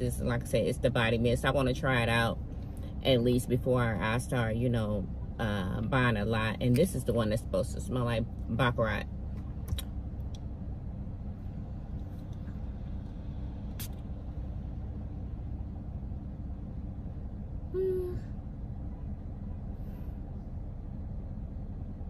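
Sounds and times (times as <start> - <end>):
car engine rumble: 0.0 - 22.0
person humming: 17.7 - 18.3.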